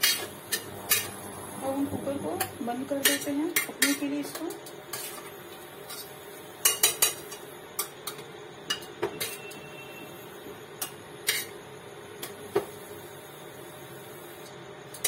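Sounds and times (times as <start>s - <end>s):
steady low hum: 0.0s - 8.9s.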